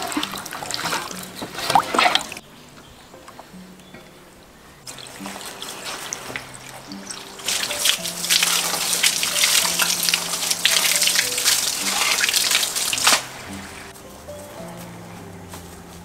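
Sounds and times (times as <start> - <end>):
hose water running and splashing: 0.0 - 2.4, 4.9 - 14.4.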